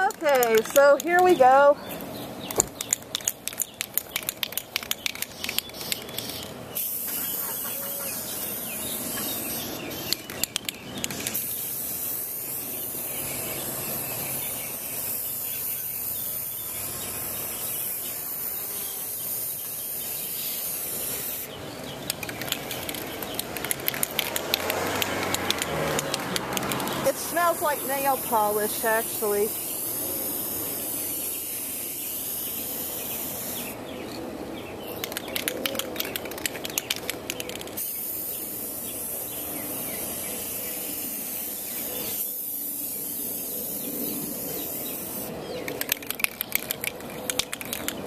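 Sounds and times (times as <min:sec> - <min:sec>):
aerosol spray can hissing: 0:04.4 - 0:21.6, 0:22.2 - 0:33.8, 0:36.0 - 0:45.3
rapid clicks: 0:21.9 - 0:27.0, 0:34.9 - 0:37.8, 0:45.6 - 0:48.0.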